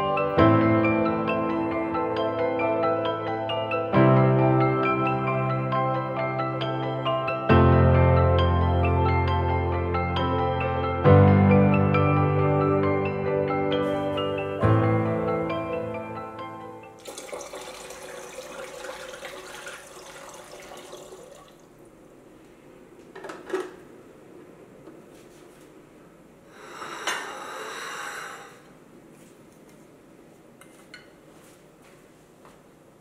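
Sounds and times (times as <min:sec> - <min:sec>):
water pouring into a reservoir: 0:17.0 - 0:21.7.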